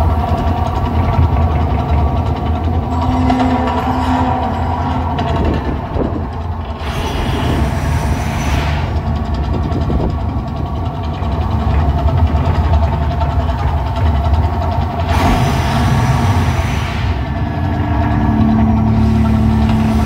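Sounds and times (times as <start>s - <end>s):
deep rumble: 0.0s - 20.0s
gas flame rushing: 6.7s - 9.4s, 15.0s - 17.7s.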